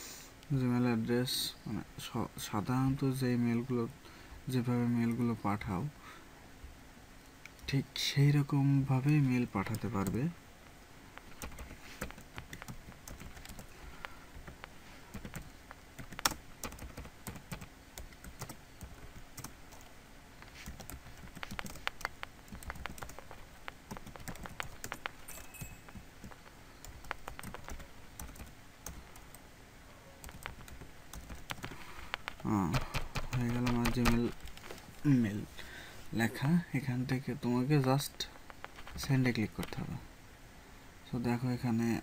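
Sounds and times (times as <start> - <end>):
keyboard typing clicks: 11.2 - 13.7, 14.4 - 19.9, 20.6 - 29.4, 30.2 - 34.6.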